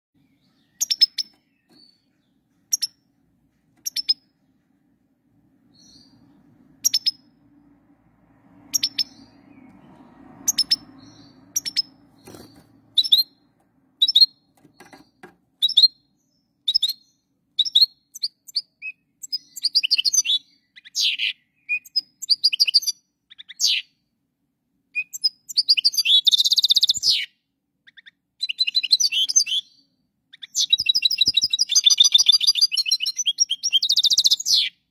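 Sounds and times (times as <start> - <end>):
goldfinch chirping and twittering: 8.7 - 13.3, 30.4 - 34.7.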